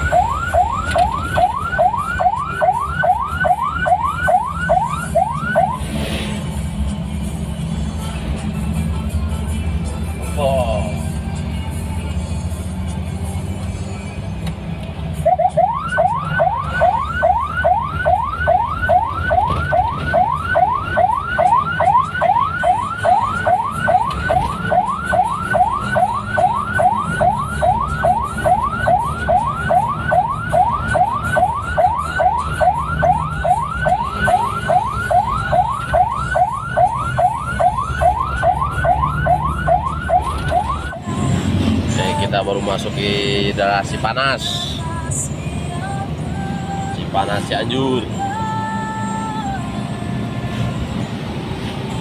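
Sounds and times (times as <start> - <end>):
electronic siren wailing: 0.0 - 5.9, 15.2 - 41.0
car engine hum and road noise: 0.0 - 52.0.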